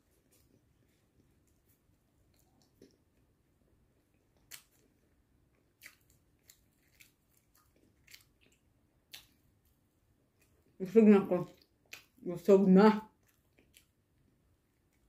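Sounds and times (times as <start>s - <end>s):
mouth clicks from chewing: 5.8s - 9.4s.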